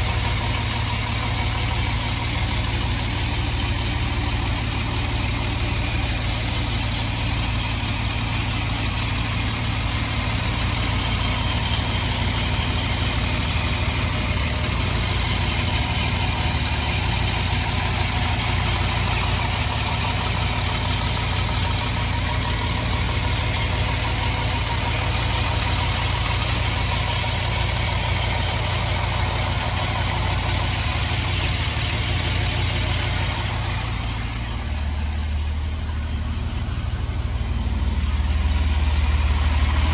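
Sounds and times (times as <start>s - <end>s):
car engine idling: 0.0s - 39.9s.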